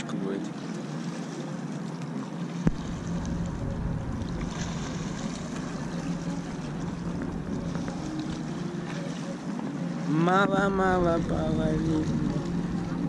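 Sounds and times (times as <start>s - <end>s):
wind rumbling on microphone: 2.6s - 8.9s
steady low hum: 2.6s - 13.0s.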